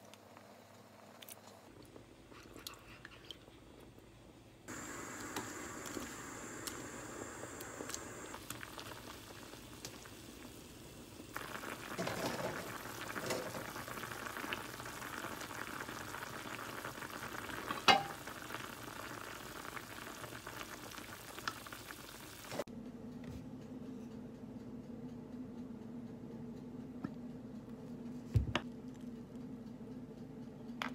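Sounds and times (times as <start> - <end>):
stew bubbling in a pot: 4.7 - 22.7.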